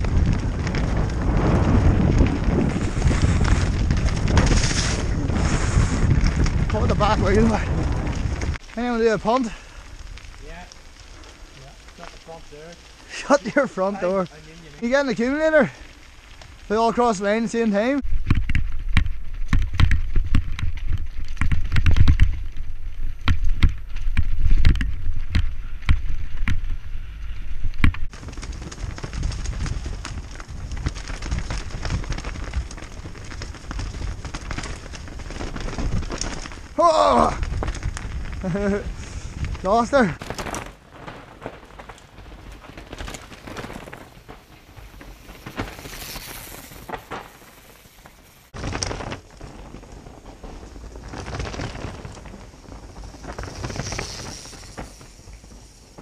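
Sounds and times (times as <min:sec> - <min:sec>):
bike rattling and knocking: 0:00.0 - 0:08.6, 0:18.0 - 0:56.0
wind buffeting microphone: 0:00.0 - 0:11.6, 0:24.1 - 0:47.0.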